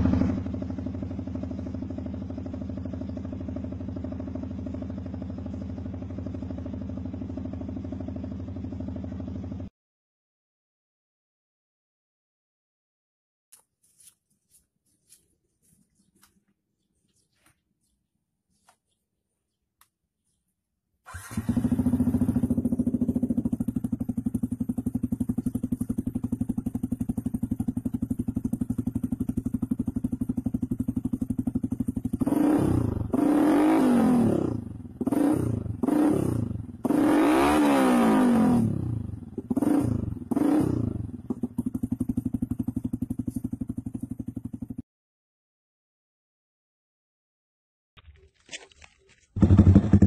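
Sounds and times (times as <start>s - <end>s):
motorcycle engine idling: 0.0s - 9.7s, 21.1s - 37.7s, 38.4s - 44.8s, 49.4s - 50.0s
motorcycle engine revving: 0.0s - 9.7s, 21.1s - 44.8s, 49.4s - 50.0s.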